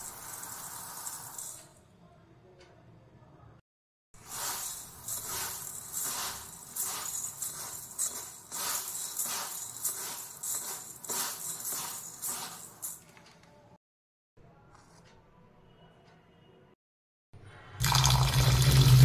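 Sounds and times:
hands rubbing dry grains in bowl: 4.2 - 13.0.

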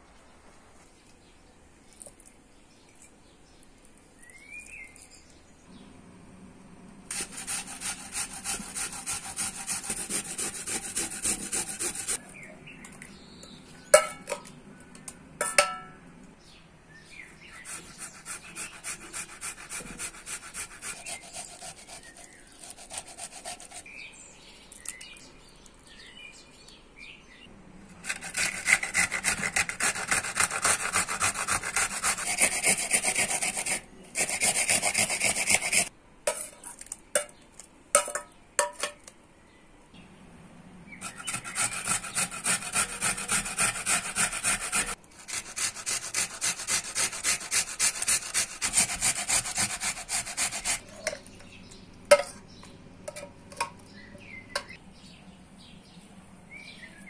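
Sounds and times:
rhythmic scraping of food: 7.1 - 12.2, 17.3 - 24.1, 27.9 - 36.9, 41.0 - 53.8.

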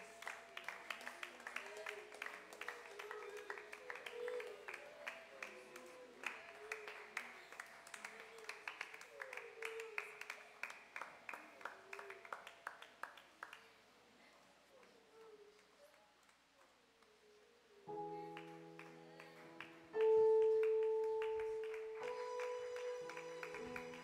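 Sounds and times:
faint voices: 0.0 - 10.4
group hand clapping: 0.0 - 13.7, 18.3 - 24.0.

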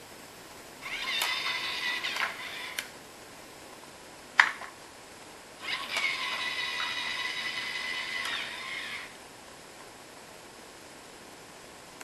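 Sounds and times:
small electric motor whirring: 0.8 - 2.9, 5.6 - 9.2.

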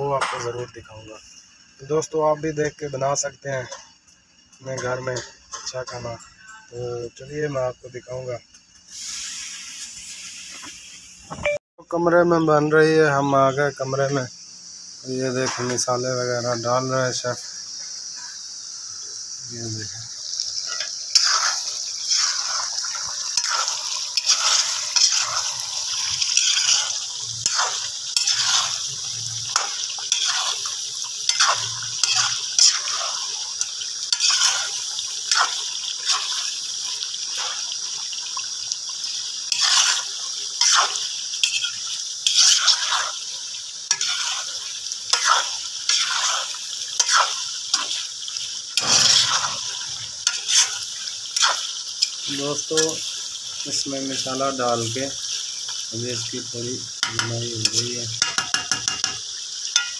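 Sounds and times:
chicken sizzling in hot oil: 0.0 - 59.9
metal spoon scraping pan: 20.6 - 28.8, 29.5 - 36.5, 39.5 - 40.0, 40.6 - 43.1, 43.9 - 44.5, 45.1 - 48.0, 48.8 - 50.8, 51.4 - 53.1.

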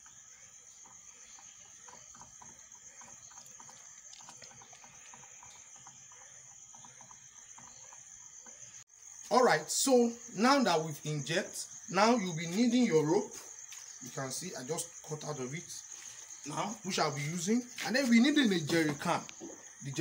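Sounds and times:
crickets chirring: 0.0 - 20.0
wet clicks and pats in water: 3.3 - 5.6.

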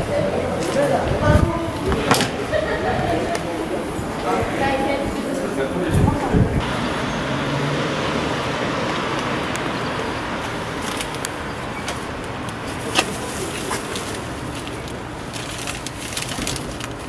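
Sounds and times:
city traffic: 0.0 - 17.0
paper and plastic wrapper crinkling: 12.7 - 17.0.

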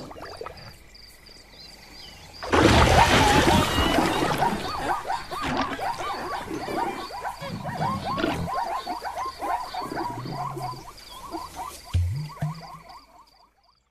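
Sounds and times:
zebras yelping calls: 3.0 - 12.6
regular high chirp: 10.7 - 13.4.

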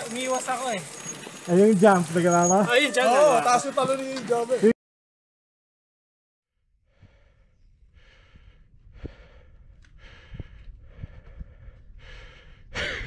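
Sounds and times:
low rumble: 6.8 - 13.0
person breathing: 6.8 - 13.0.

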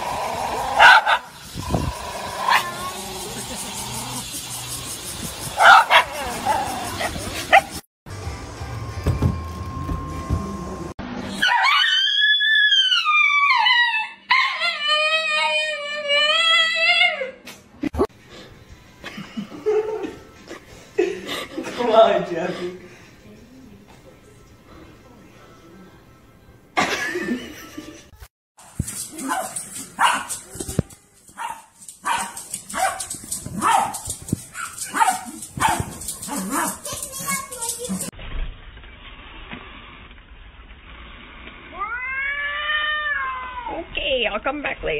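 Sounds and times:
small dog barking: 0.8 - 1.3, 5.6 - 6.1, 29.2 - 30.4, 31.4 - 36.8.

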